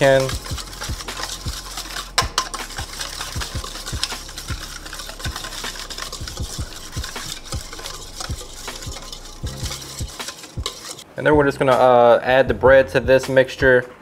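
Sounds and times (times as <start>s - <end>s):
whisk clicking in metal bowl: 0.0s - 11.0s
whisk clinking on bowl: 0.0s - 11.0s.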